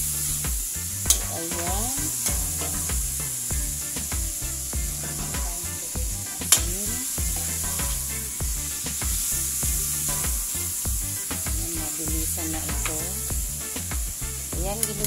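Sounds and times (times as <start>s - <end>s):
background music with bass: 0.0s - 15.0s
food sizzling in oil: 0.0s - 15.0s
metal spatula scraping a wok: 0.1s - 13.8s
spatula clack on pan: 10.0s - 10.6s.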